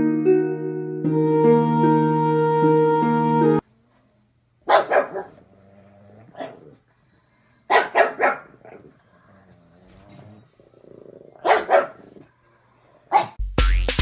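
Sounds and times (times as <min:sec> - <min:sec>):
dog barking: 0:04.6 - 0:05.4, 0:06.3 - 0:06.7, 0:07.7 - 0:08.8, 0:11.4 - 0:12.2, 0:13.1 - 0:13.4.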